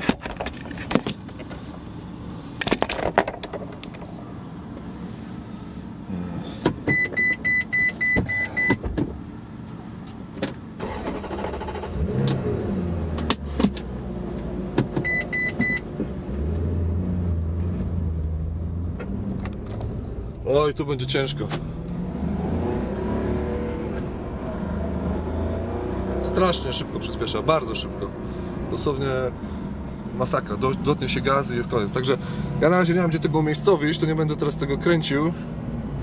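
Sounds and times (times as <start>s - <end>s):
car engine humming: 0.0s - 36.0s
electronic beeps from car: 6.8s - 8.8s, 15.0s - 15.9s.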